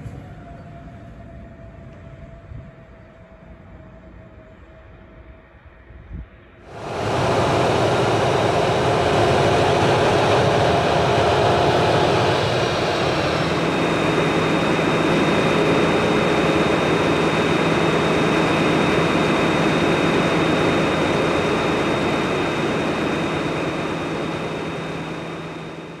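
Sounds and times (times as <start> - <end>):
train rushing past: 6.6 - 26.0
high whine: 6.7 - 26.0.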